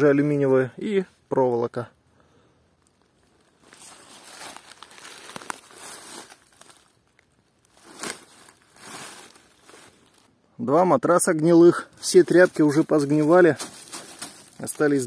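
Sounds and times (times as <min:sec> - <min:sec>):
dry leaves crunching underfoot: 0:02.8 - 0:10.3, 0:11.9 - 0:15.0.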